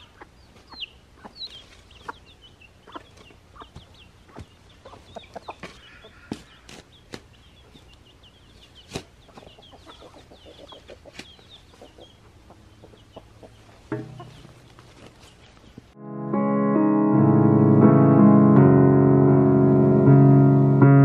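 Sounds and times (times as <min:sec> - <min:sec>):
birds calling: 0:00.0 - 0:16.0
piano music: 0:13.9 - 0:14.6, 0:15.9 - 0:21.0.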